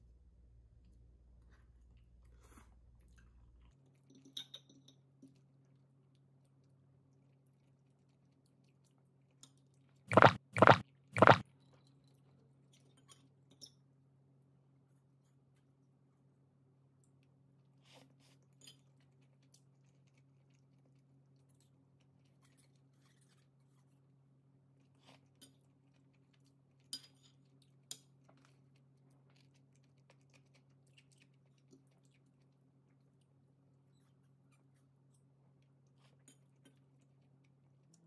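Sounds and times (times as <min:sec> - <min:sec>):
sharp clicks: 0:10.1 - 0:11.4.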